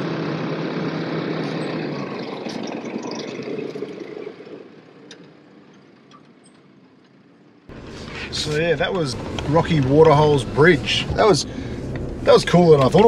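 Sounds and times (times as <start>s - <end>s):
vehicle engine passing by: 0.0s - 5.0s, 7.7s - 13.0s
tyres crackling on dirt: 7.0s - 13.0s.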